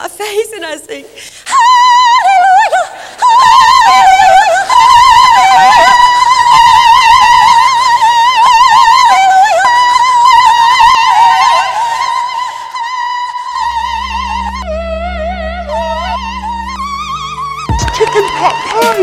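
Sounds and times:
woman singing operatic notes: 0:01.5 - 0:19.0
low synth drone: 0:12.3 - 0:19.0.

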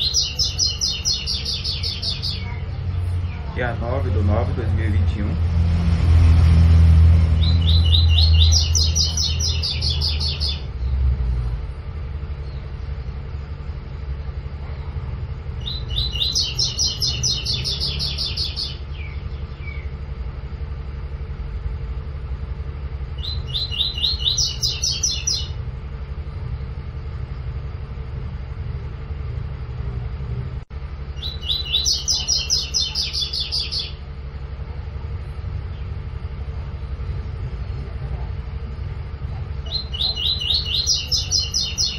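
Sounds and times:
bird singing rapid repeated notes: 0:00.0 - 0:05.7, 0:06.9 - 0:11.2, 0:12.0 - 0:14.2, 0:15.4 - 0:21.2, 0:22.6 - 0:25.9, 0:31.0 - 0:34.5, 0:39.6 - 0:41.9
steady low rumble: 0:00.0 - 0:41.9.

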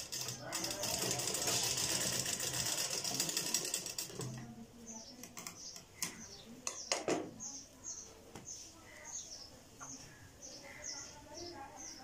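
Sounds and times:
sewing machine stitching: 0:00.0 - 0:04.4.

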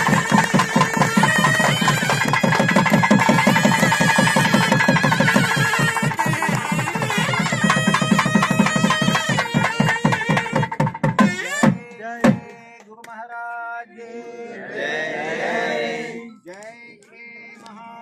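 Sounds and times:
hand drum beat: 0:00.0 - 0:12.6
group chanting: 0:12.0 - 0:18.0.

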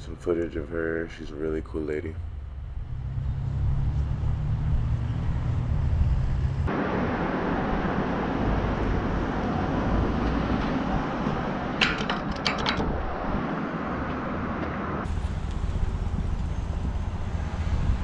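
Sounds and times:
traffic hiss: 0:14.9 - 0:18.0.

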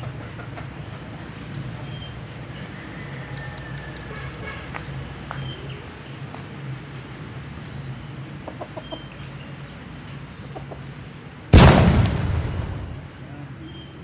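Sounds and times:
chickens clucking: 0:08.4 - 0:09.2.

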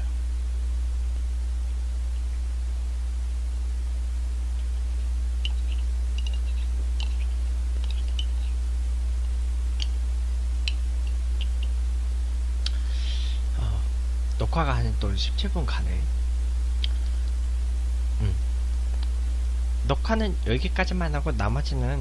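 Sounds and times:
low electrical hum: 0:00.0 - 0:22.0
stirring stick clicking on mug: 0:05.4 - 0:08.4.

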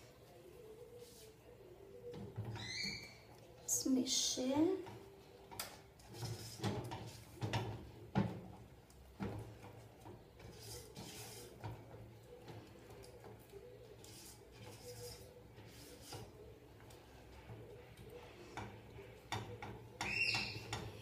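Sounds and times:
utensil scraping a saucepan: 0:05.9 - 0:08.1, 0:09.2 - 0:21.0.

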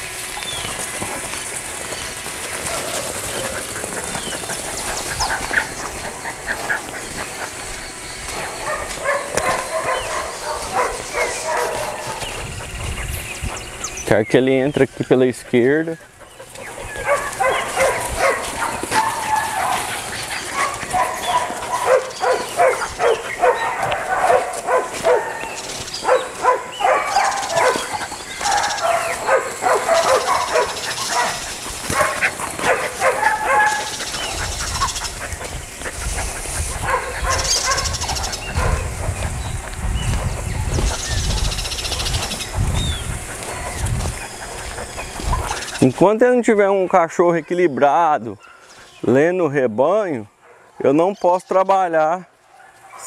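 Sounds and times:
dog barking: 0:08.6 - 0:12.4, 0:16.9 - 0:35.0, 0:36.7 - 0:38.9, 0:52.2 - 0:53.0.

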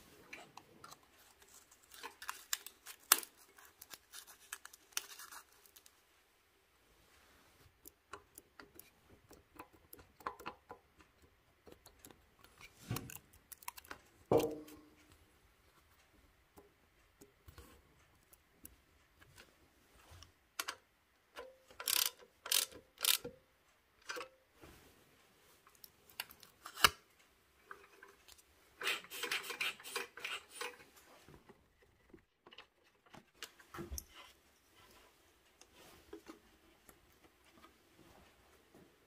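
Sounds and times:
small parts clicking and tapping: 0:07.6 - 0:15.2, 0:16.5 - 0:23.4, 0:24.0 - 0:24.4
rustling and scraping: 0:27.6 - 0:39.0.

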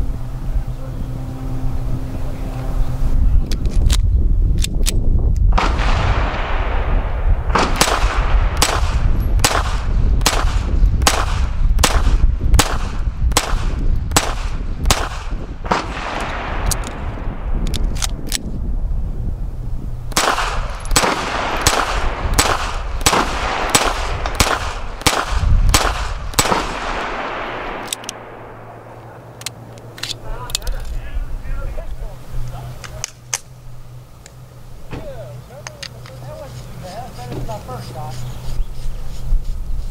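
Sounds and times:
pistol firing rapid shots: 0:07.5 - 0:16.6, 0:20.1 - 0:28.4.

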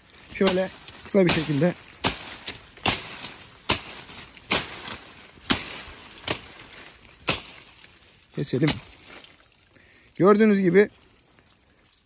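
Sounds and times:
knife chopping leafy shoots: 0:00.3 - 0:07.6.

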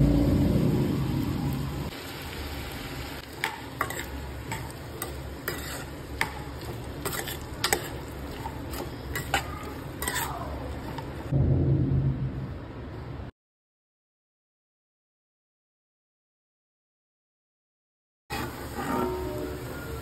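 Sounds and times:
low rumble: 0:00.0 - 0:01.9, 0:11.3 - 0:13.3
potatoes sizzling: 0:00.0 - 0:11.3, 0:18.3 - 0:20.0
spatula scraping pan: 0:03.3 - 0:11.3, 0:18.3 - 0:19.7.

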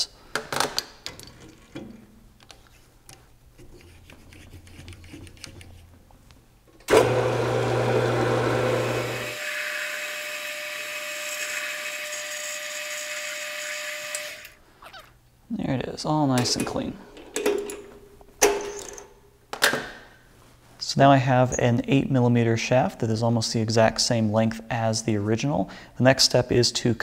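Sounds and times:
metal lathe cutting whine: 0:06.9 - 0:14.4.

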